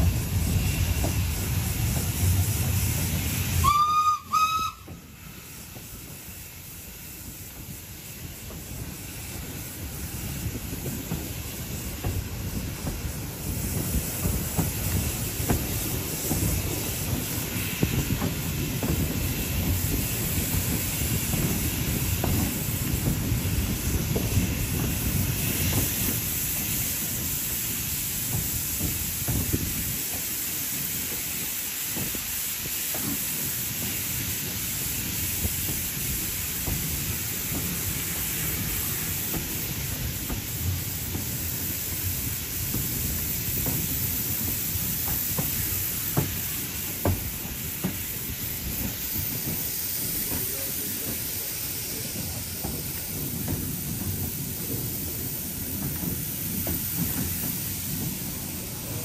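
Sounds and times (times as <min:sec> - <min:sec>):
train rumble and clatter: 0:00.0 - 0:59.0
steam whistle toots: 0:03.4 - 0:05.4.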